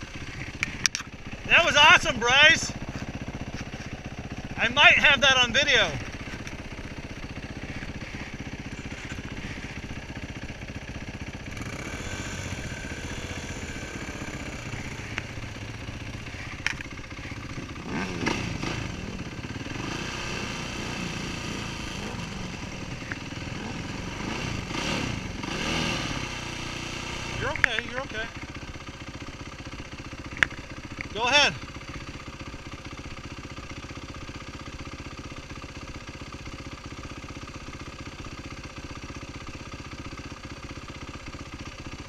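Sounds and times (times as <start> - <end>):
dirt bike engines revving: 0.0 - 28.7
dirt bike engine idling: 0.0 - 42.0.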